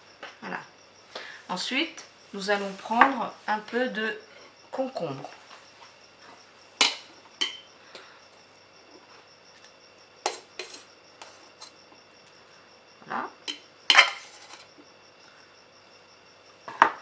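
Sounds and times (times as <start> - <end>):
metal tongs clinking on bowls: 6.8 - 7.6, 13.5 - 14.6.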